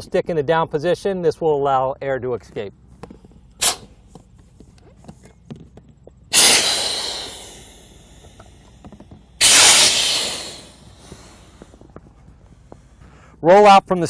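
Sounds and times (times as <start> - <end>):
air hissing out of valves: 3.6 - 4.0, 6.3 - 13.1
valve click: 6.3 - 8.7, 9.4 - 11.2.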